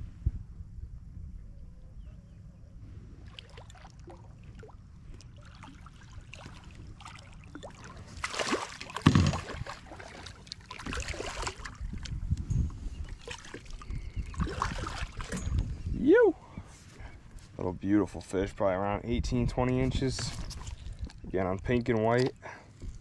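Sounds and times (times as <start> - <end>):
water splashing beside boat hull: 3.2 - 12.3, 13.0 - 15.6
fish thrashing at the surface: 3.3 - 12.0, 13.2 - 15.5.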